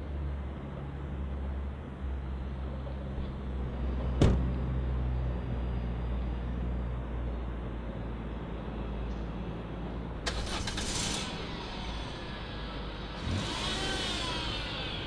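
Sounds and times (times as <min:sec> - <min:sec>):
car door slamming: 0:04.2 - 0:04.5.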